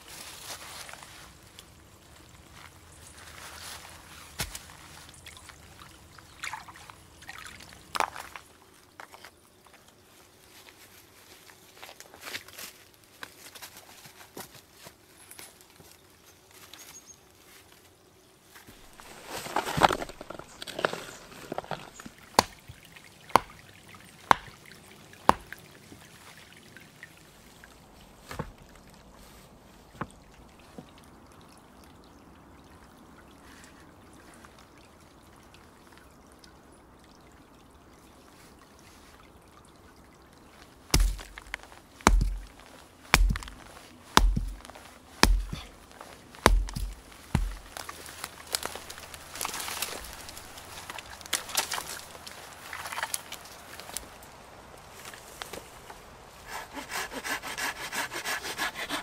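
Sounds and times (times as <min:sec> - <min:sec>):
heavy thuds of stake pounding: 0:23.4 - 0:23.6, 0:24.3 - 0:24.6, 0:40.9 - 0:45.8, 0:46.4 - 0:47.8
sharp knocks: 0:24.3 - 0:24.6, 0:41.0 - 0:42.5, 0:43.1 - 0:43.6, 0:44.2 - 0:45.7, 0:46.4 - 0:47.7.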